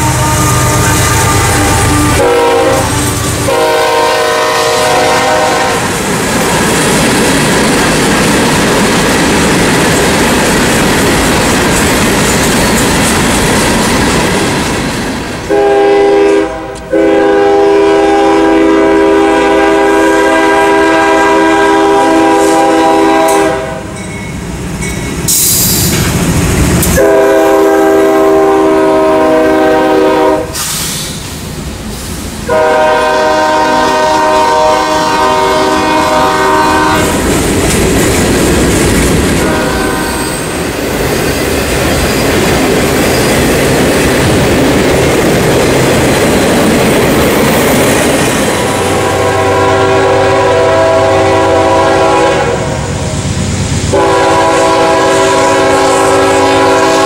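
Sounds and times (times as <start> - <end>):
locomotive air horn blasts: 0.0 - 6.0, 15.5 - 23.9, 27.0 - 30.7, 32.5 - 37.2, 39.4 - 40.5, 48.8 - 53.1, 53.9 - 57.0
train wheels rolling on rails: 0.0 - 57.0.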